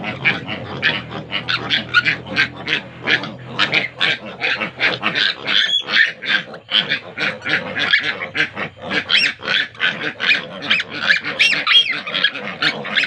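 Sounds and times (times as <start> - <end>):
piglets squealing and grunting: 0.0 - 13.0.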